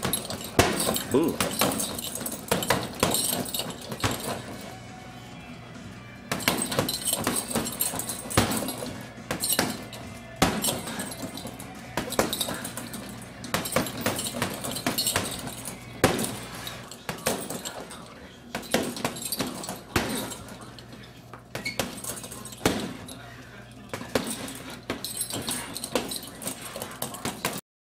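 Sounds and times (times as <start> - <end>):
punches striking a heavy bag: 0.0 - 4.6, 6.3 - 16.5, 18.6 - 20.4, 21.6 - 23.1
chains clinking: 0.0 - 4.8, 6.4 - 27.6.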